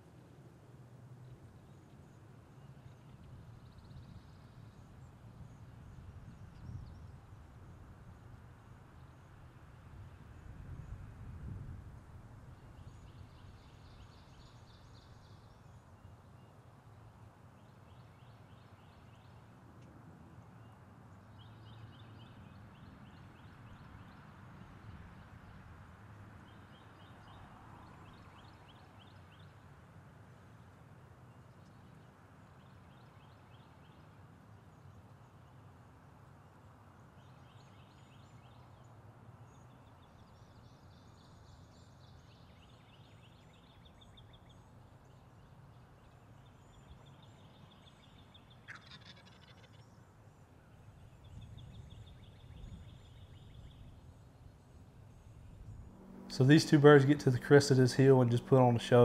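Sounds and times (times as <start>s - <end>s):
low steady rumble: 51.1s - 59.0s.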